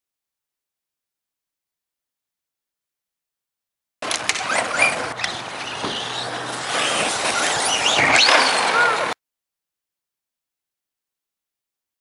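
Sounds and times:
toy truck motors whining: 4.0 - 9.2
people talking: 8.6 - 9.2.

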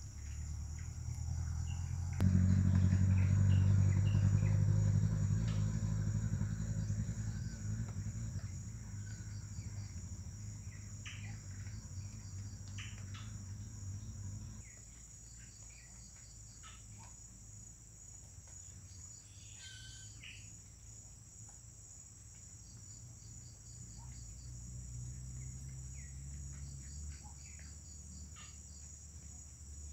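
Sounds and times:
vehicle engine hum: 0.0 - 16.8, 23.0 - 29.9
insect chorus trilling: 0.0 - 21.1, 21.8 - 29.9
bird chirps: 19.2 - 20.5.

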